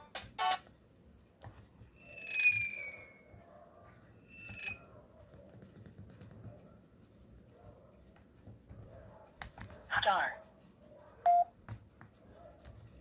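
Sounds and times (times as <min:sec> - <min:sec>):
falling whistle-like tones: 0:02.0 - 0:03.2.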